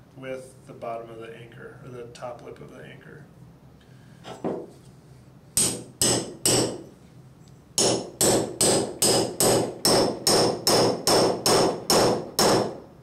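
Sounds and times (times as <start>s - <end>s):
hammer striking metal tool: 5.6s - 6.8s, 7.8s - 12.8s.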